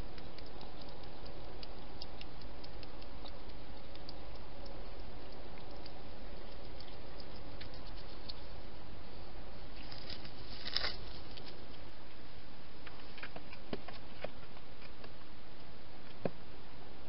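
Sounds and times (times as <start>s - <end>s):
hedgehog rustling and clicking: 0.0s - 8.5s.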